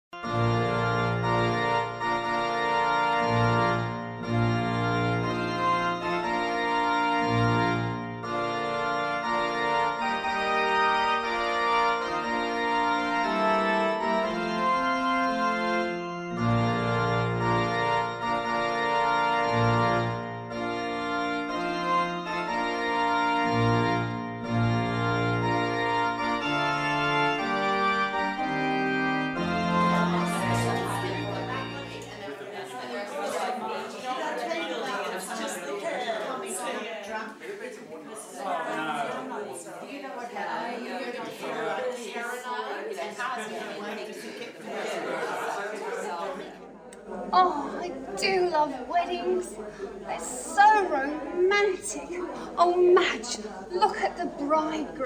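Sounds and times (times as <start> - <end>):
organ playing slow chords: 0.2 - 37.2.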